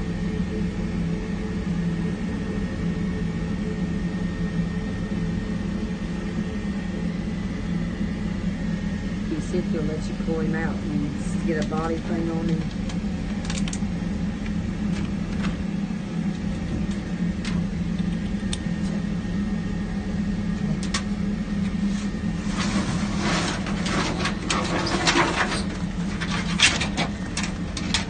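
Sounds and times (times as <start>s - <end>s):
dog scraping on metal truck bed: 22.4s - 27.0s.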